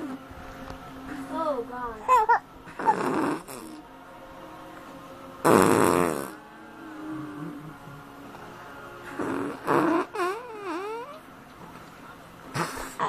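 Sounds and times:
lips buzzing against cheek: 2.8s - 3.8s, 5.4s - 6.4s, 9.1s - 11.2s.

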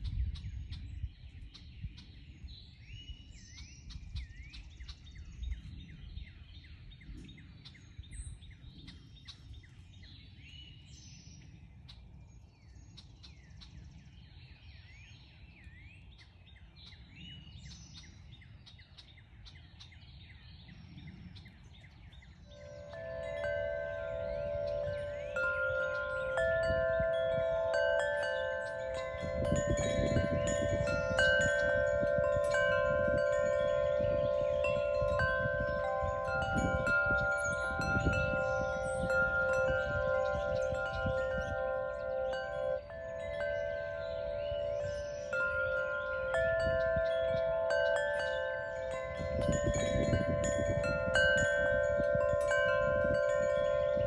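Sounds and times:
wind chimes ringing: 22.4s - 54.0s.

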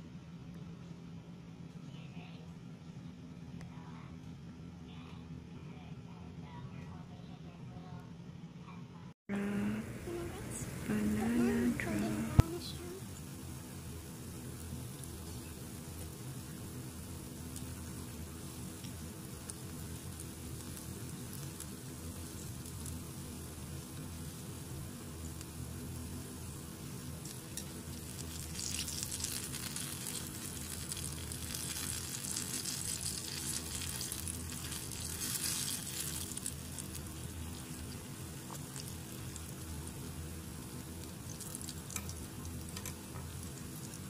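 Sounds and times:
food sizzling in hot oil: 10.0s - 44.0s.

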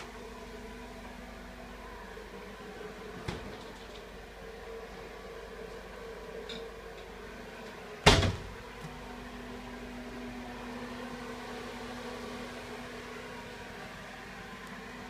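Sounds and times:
exhaust fan humming: 0.0s - 15.0s
higher steady hum: 0.0s - 15.0s.

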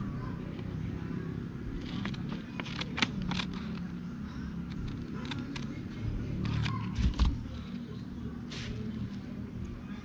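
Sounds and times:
scissors snipping packet: 1.8s - 3.8s.

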